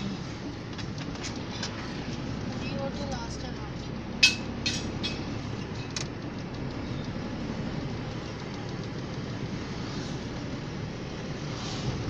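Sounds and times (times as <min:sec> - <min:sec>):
car engine and road rumble: 0:00.0 - 0:12.0
sharp clicks: 0:08.2 - 0:09.3.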